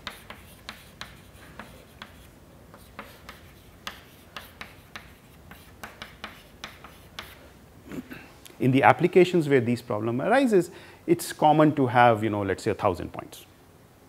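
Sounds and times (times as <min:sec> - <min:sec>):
chalk tapping and scraping on chalkboard: 0:00.0 - 0:07.5.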